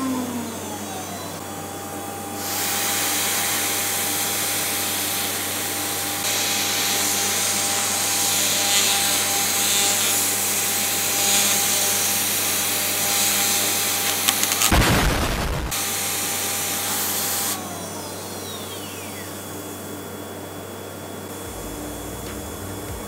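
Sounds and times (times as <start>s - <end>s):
router spindle cutting plastic: 6.3s - 14.8s.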